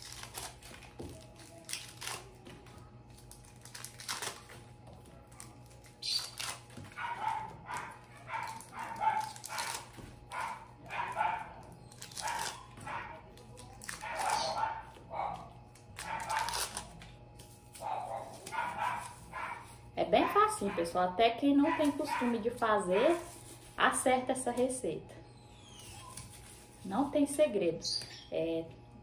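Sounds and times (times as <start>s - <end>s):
wrappers crinkling: 0.0s - 19.9s, 21.6s - 24.8s, 25.6s - 27.1s
dog barking: 6.9s - 13.3s, 13.9s - 16.7s, 17.8s - 21.0s, 21.6s - 23.3s.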